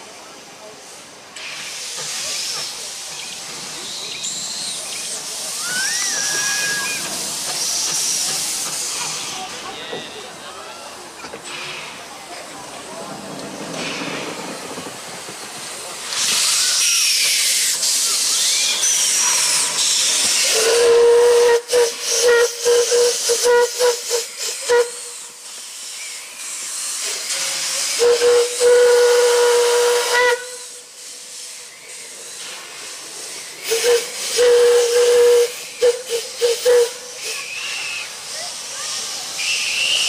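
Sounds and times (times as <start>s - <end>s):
loud hiss of steam: 0.0s - 40.0s
steam whistle blasts and toots: 20.4s - 25.3s, 27.9s - 30.9s, 33.7s - 38.1s, 39.4s - 40.0s.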